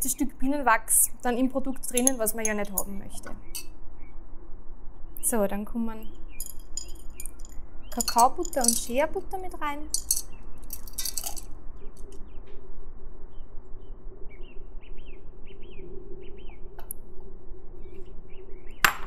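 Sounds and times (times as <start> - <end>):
steady low hum: 0.0 - 19.0
solid butter pieces clinking: 6.4 - 9.0, 9.9 - 11.4
bird chirping: 13.3 - 16.8.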